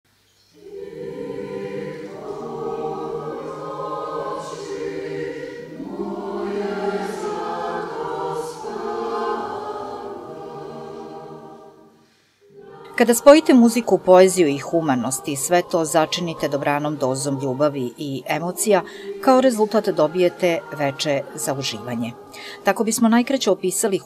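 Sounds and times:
mixed choir singing: 0.6s - 24.0s.

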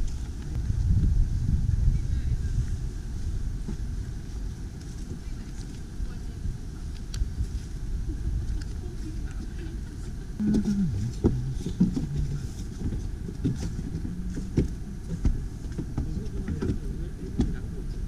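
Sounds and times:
wind rumble on microphone: 0.0s - 18.0s
muffled voice: 8.6s - 13.0s, 16.0s - 18.0s
footsteps on wooden deck: 10.4s - 17.7s.

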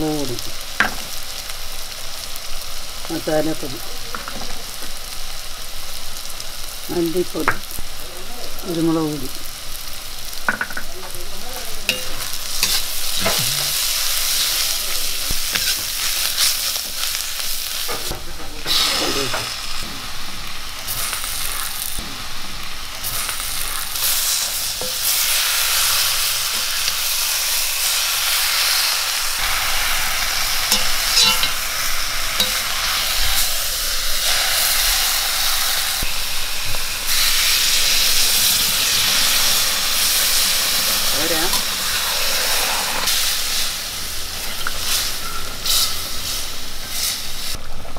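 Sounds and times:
food sizzling in oil: 0.0s - 47.7s
metal spoon scraping a pan: 11.9s - 17.2s, 29.4s - 33.5s, 44.5s - 46.4s
spoon clicking against pan: 30.8s - 31.6s.

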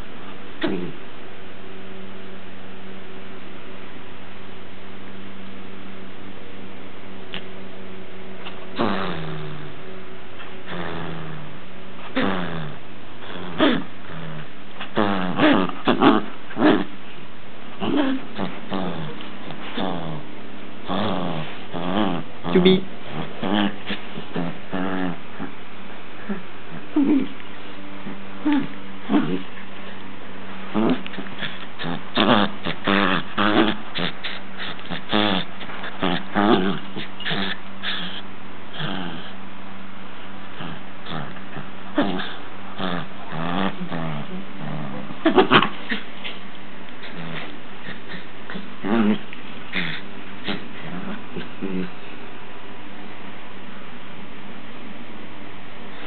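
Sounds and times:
small dog growling in play: 8.4s - 17.0s, 17.7s - 30.0s, 30.6s - 39.6s, 40.4s - 52.2s.

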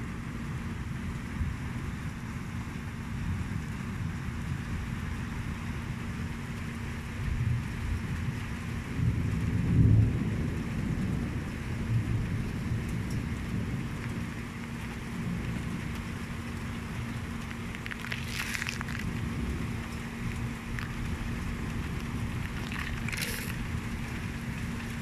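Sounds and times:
steady rain falling: 0.0s - 25.0s
low rumble: 17.1s - 25.0s
brief crackle: 17.6s - 19.2s, 20.7s - 21.0s, 22.4s - 23.6s.

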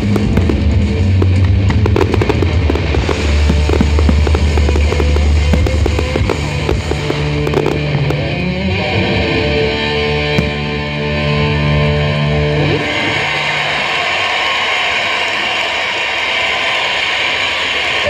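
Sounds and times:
fireworks bangs and crackling: 0.0s - 11.8s
loud show music: 0.0s - 15.5s.

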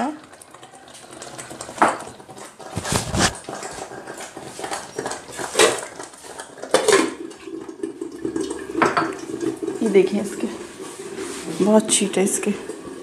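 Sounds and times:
metal pot lid clattering: 6.6s - 7.2s.

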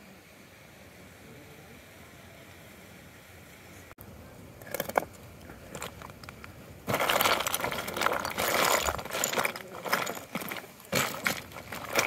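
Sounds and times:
snow and ice crunching: 6.8s - 12.0s.

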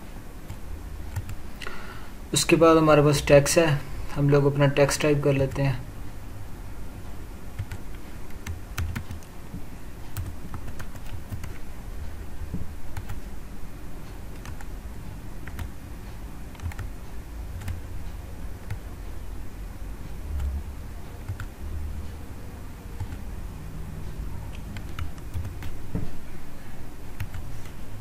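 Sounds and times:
computer keyboard typing: 0.5s - 1.4s, 7.6s - 9.3s, 10.1s - 11.7s, 12.9s - 13.3s, 14.3s - 14.7s, 15.4s - 15.8s, 16.5s - 17.9s, 18.6s - 18.9s, 20.2s - 20.6s, 21.2s - 21.6s, 23.0s - 23.3s, 24.5s - 25.8s, 27.2s - 27.8s.

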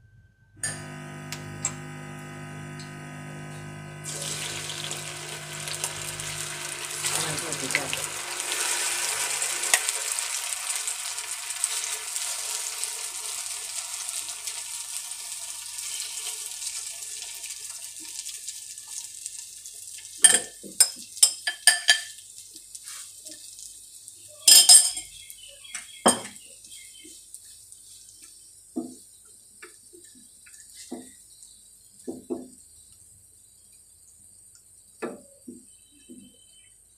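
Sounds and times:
food sizzling in hot oil: 0.6s - 29.1s.

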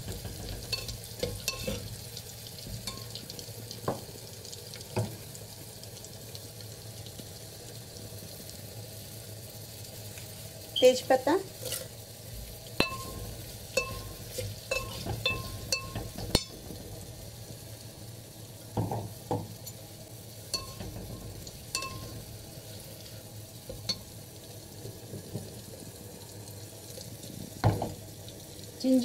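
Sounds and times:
ghee sizzling in a pot: 0.0s - 29.0s
spoon clinking against pot: 0.5s - 1.8s, 2.8s - 3.2s, 12.8s - 16.6s, 20.5s - 22.2s.

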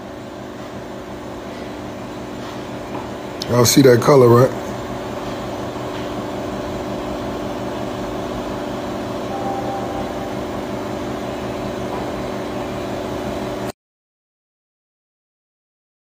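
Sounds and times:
mechanical hum and hiss: 0.0s - 13.7s
faint short high tone: 9.3s - 11.2s
steady low tones: 9.3s - 11.5s.

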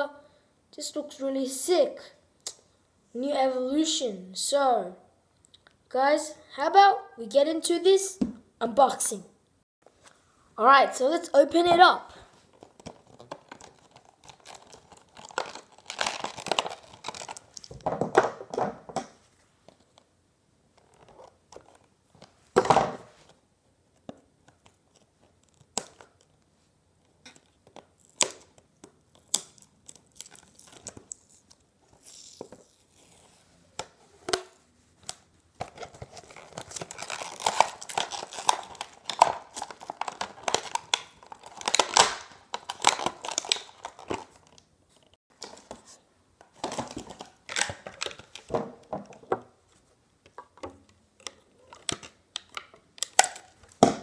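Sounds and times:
plastic packaging crinkling: 12.4s - 17.9s, 35.6s - 45.8s
sharp plastic crack: 36.8s - 44.3s.

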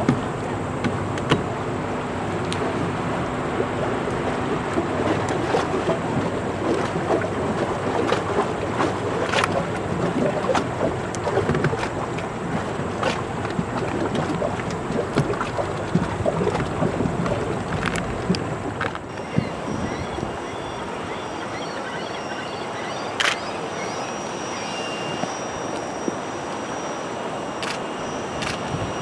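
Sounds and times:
wind on microphone: 0.0s - 22.0s, 22.6s - 29.0s
water rushing along ship hull: 0.0s - 29.0s
small crackles and splashes: 4.7s - 19.4s.

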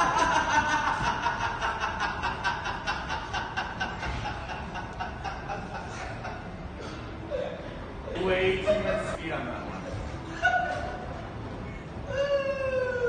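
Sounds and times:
person laughing hard: 0.0s - 7.0s.

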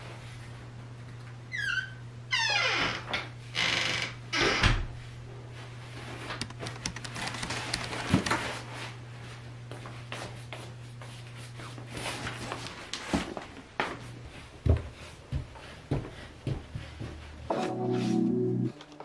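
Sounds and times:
slippered footsteps on tiles: 9.7s - 17.5s.

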